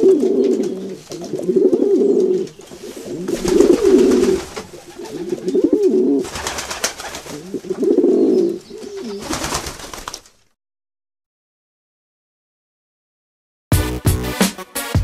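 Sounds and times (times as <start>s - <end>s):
pigeons cooing: 0.0s - 9.7s
wings flapping: 2.7s - 8.2s, 8.8s - 10.6s.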